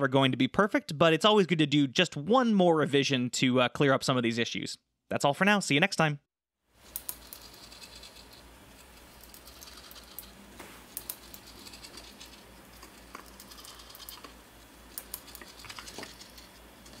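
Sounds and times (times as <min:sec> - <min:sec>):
plastic parts clicking and rattling: 0:15.0 - 0:17.0.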